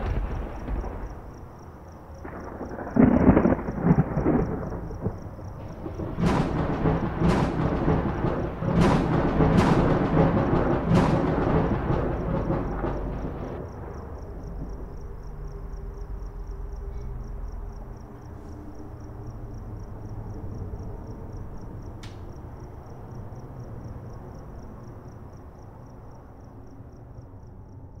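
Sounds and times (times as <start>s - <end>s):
heavy rumble with deep booms: 0.0s - 21.7s
low dark drone: 0.0s - 28.0s.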